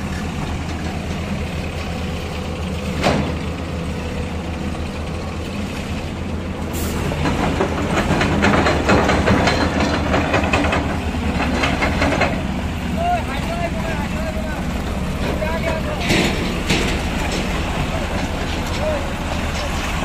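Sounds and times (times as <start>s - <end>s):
diesel engine running: 0.0s - 20.0s
metallic clatter: 7.2s - 12.6s, 15.1s - 20.0s.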